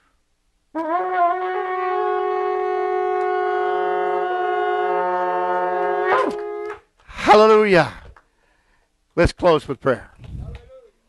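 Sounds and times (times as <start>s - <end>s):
shofar blast: 0.7s - 6.9s.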